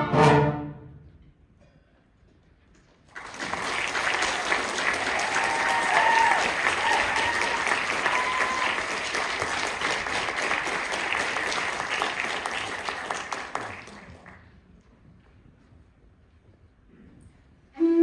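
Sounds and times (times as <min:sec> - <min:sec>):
audience applauding: 0:03.1 - 0:14.6.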